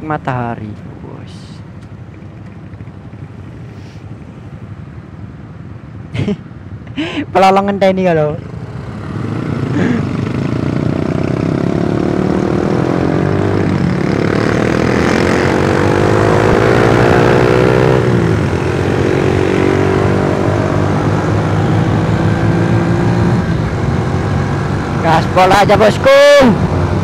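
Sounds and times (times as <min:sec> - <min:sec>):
motorcycle engine revving: 0:08.4 - 0:27.0.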